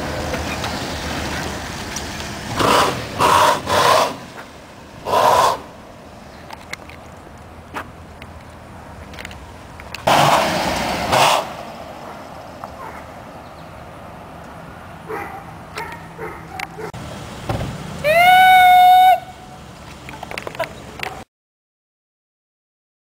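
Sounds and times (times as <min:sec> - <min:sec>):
low vehicle rumble: 0:00.0 - 0:21.2
loud rushing noise: 0:10.1 - 0:12.1.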